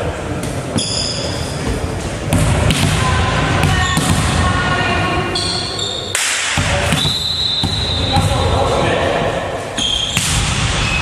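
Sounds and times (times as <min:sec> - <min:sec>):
players' voices echoing: 0:00.0 - 0:11.0
volleyball bouncing on wooden floor: 0:02.3 - 0:04.5, 0:06.2 - 0:08.6.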